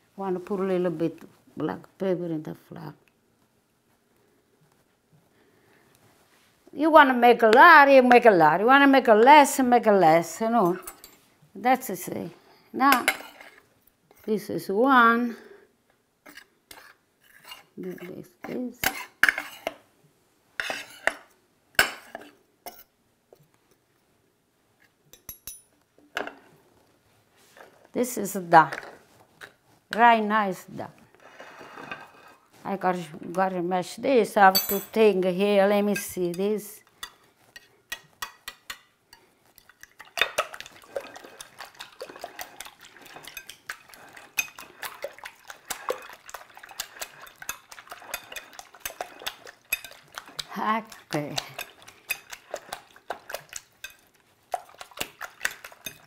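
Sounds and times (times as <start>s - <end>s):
fork beating eggs in glass bowl: 35.9s - 56.0s
metal cutlery scraping glass dish: 47.2s - 50.2s, 55.8s - 56.0s.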